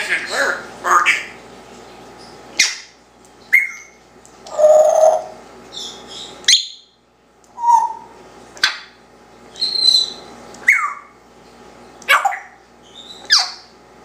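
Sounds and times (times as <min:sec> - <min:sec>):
parrot whistles and calls: 0:03.5 - 0:06.9, 0:07.6 - 0:08.9, 0:09.5 - 0:11.2, 0:12.1 - 0:13.7.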